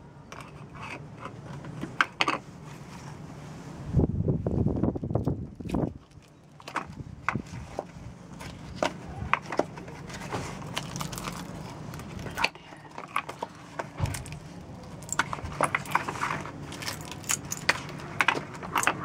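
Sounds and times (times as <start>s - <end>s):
low steady hum: 0.0s - 19.0s
resin pucks clicking and knocking: 6.0s - 19.0s.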